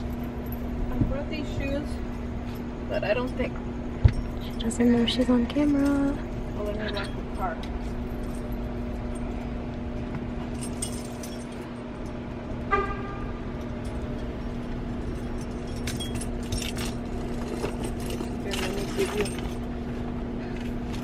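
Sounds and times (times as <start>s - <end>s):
steady low hum: 0.0s - 21.0s
keys jingling: 4.1s - 9.6s, 10.4s - 12.2s, 13.6s - 19.7s
car horn chirp: 12.7s - 13.5s.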